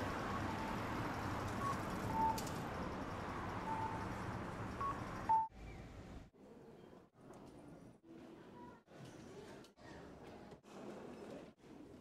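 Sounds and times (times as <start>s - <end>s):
streetcar rumble: 0.0s - 5.4s.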